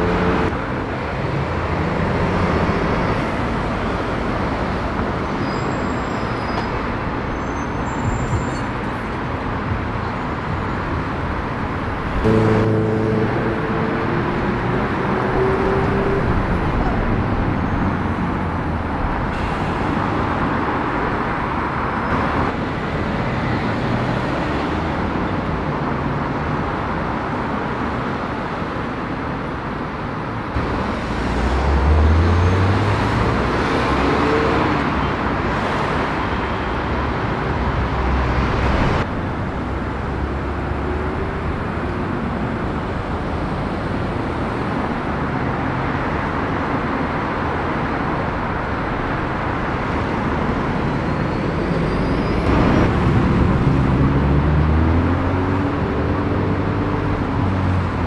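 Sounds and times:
cars driving past: 0:00.0 - 0:28.9, 0:30.5 - 0:58.0.

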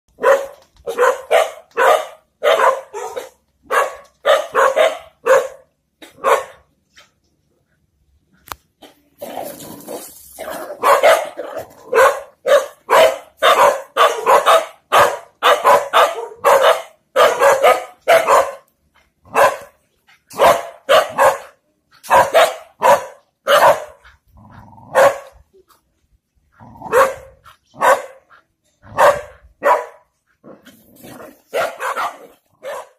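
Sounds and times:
dog barking: 0:00.1 - 0:06.7, 0:10.8 - 0:18.7, 0:19.3 - 0:24.1, 0:24.9 - 0:25.3, 0:26.8 - 0:30.1, 0:31.5 - 0:32.9.

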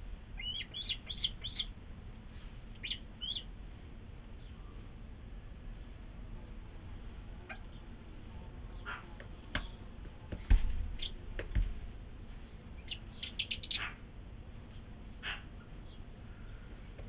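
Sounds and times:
chick squeaky peeps: 0:00.4 - 0:01.7, 0:02.8 - 0:03.5, 0:07.4 - 0:07.8, 0:12.8 - 0:14.0
dull knocks: 0:10.3 - 0:11.8.

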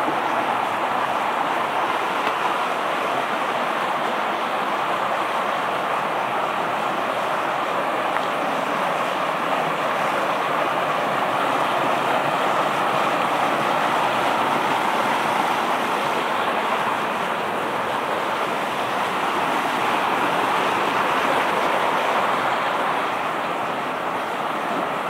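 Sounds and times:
stream rushing over stones: 0:00.0 - 0:25.0.

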